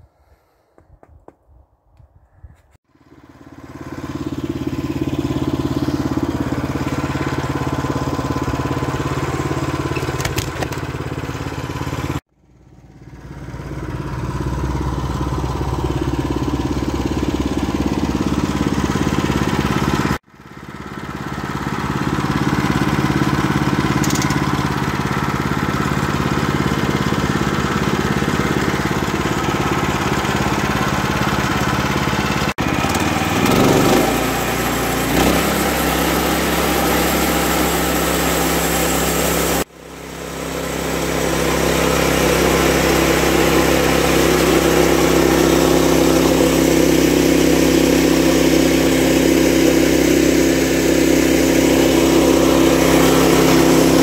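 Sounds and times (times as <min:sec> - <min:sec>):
bandsaw mill engine droning: 0:03.0 - 0:54.0.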